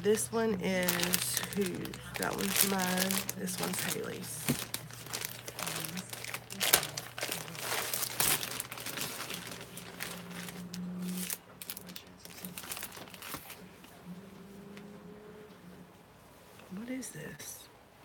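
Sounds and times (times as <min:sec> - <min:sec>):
plastic packaging crinkling: 0:00.0 - 0:13.7.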